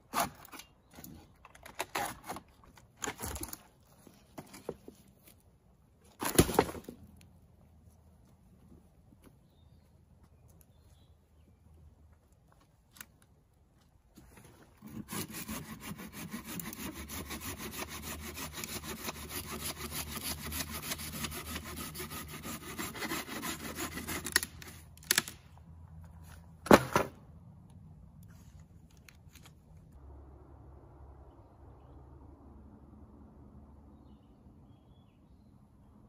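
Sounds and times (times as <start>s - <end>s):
hand saw cutting wood: 14.8s - 24.8s.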